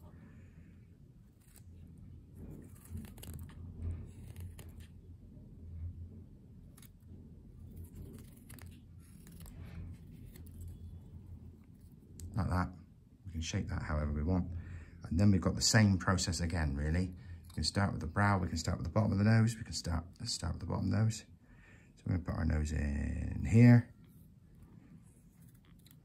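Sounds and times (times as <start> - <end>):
knife scraping wood: 1.3 - 1.8.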